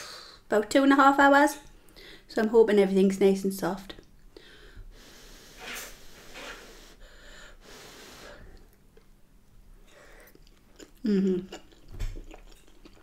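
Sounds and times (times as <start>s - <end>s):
quiet chewing: 8.5s - 13.0s
woman humming: 11.0s - 11.6s.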